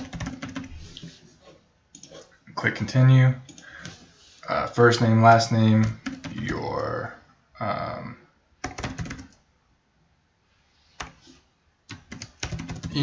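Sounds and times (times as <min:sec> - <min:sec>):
typing on computer keyboard: 0:00.0 - 0:00.7, 0:05.8 - 0:06.4, 0:08.6 - 0:09.4, 0:11.9 - 0:13.0.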